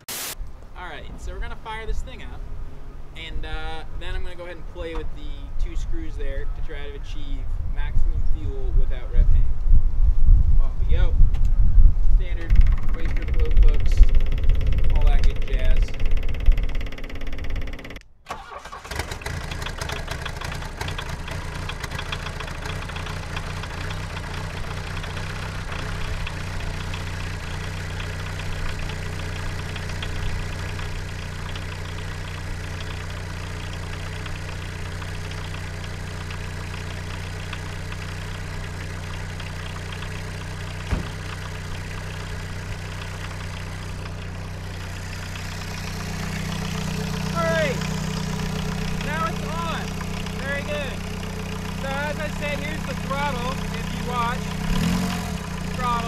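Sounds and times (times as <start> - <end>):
diesel engine starting and idling: 12.2 - 56.0
sharp knock: 40.9 - 41.2.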